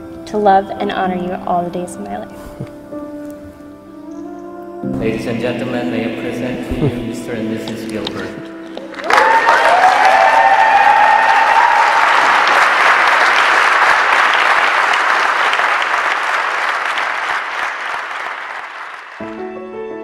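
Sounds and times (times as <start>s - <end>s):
piano music: 0.0s - 10.2s, 19.2s - 20.0s
crowd applauding: 8.6s - 19.4s
crowd cheering: 8.8s - 19.3s.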